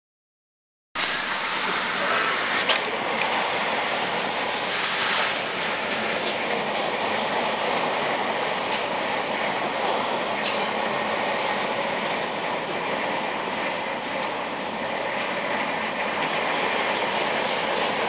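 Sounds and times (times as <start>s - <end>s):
loud hiss: 1.0s - 2.8s, 4.6s - 6.2s.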